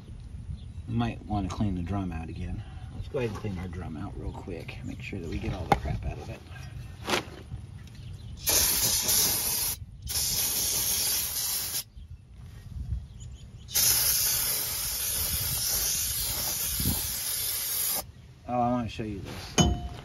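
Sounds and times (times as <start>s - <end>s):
spray can hissing: 8.4s - 11.9s, 13.7s - 18.0s.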